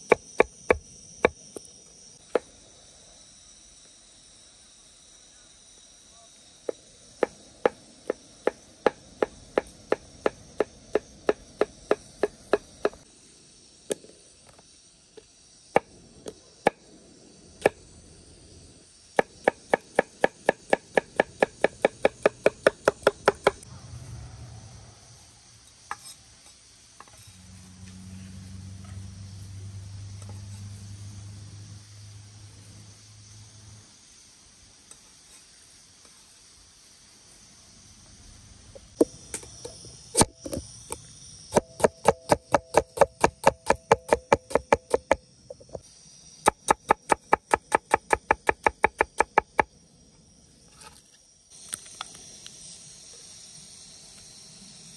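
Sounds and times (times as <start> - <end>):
insects droning: 0.0 - 54.9
low steady hum: 23.5 - 34.0
knife chopping on wooden board: 46.5 - 49.6.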